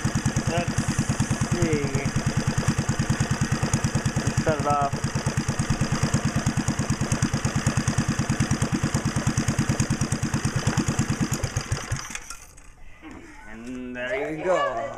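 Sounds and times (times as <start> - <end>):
small engine running and stopping: 0.0 - 12.8.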